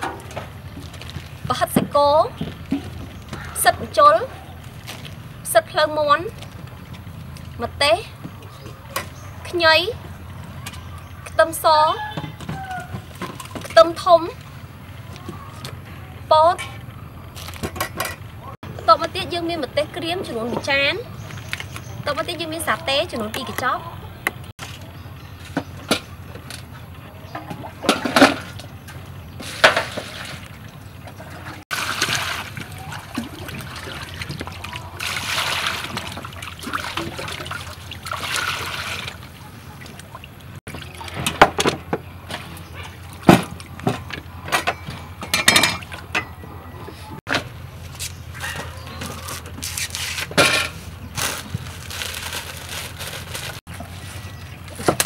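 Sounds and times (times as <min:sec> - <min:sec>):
corn husks rustling: 0:49.1 - 0:54.9.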